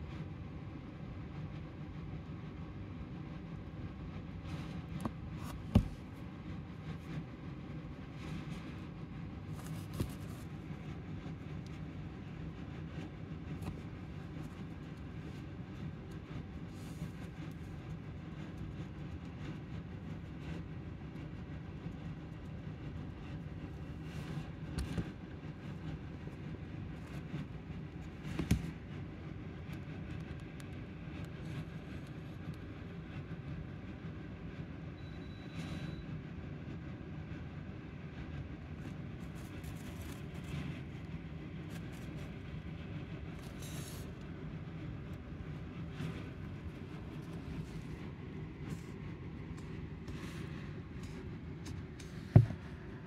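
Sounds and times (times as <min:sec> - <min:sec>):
low background rumble: 0:00.0 - 0:35.1, 0:36.9 - 0:53.0
faint hum: 0:00.0 - 0:53.0
hamster rustling bedding: 0:08.1 - 0:17.5, 0:39.0 - 0:44.2.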